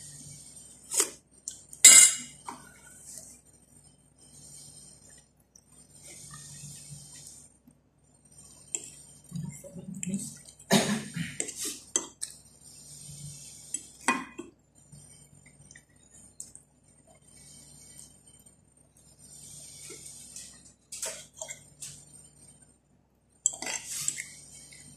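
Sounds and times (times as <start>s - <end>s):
fork scraping and clinking on plate: 1.8s - 2.4s, 23.5s - 24.8s.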